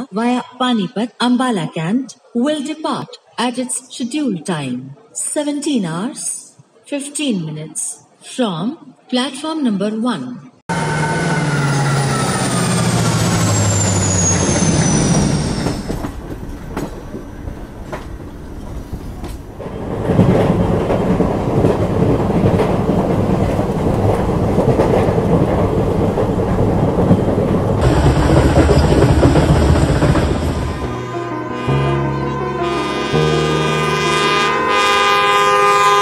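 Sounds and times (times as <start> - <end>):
rumble of wheels on track: 10.7 - 32.9
diesel locomotive engine drone: 10.7 - 36.0
train wheels clacking on rails: 12.2 - 31.0.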